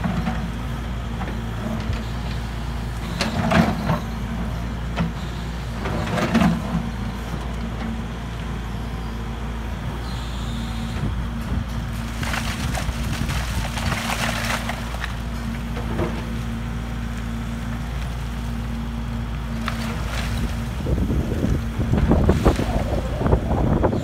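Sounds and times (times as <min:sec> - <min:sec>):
excavator engine and hydraulics: 0:00.0 - 0:24.0
stones tumbling and clattering: 0:11.9 - 0:16.3.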